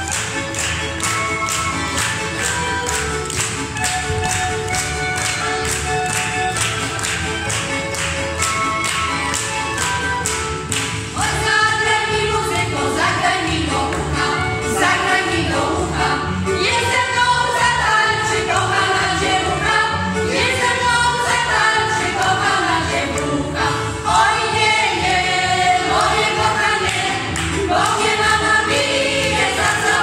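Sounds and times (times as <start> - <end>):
folk choir singing: 11.1 - 30.0.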